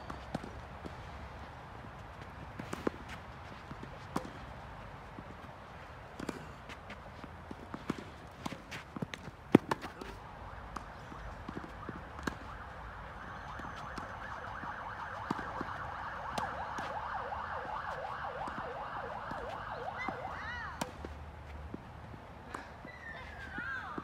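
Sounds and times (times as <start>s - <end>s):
tennis balls hit by racquets: 0.0s - 14.2s, 15.2s - 16.9s, 18.4s - 24.0s
distant siren yelping: 9.7s - 20.9s.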